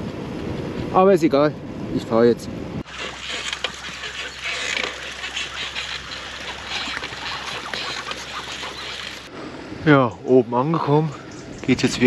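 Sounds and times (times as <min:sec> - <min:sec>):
grit crackling under tyres: 0:02.8 - 0:09.3.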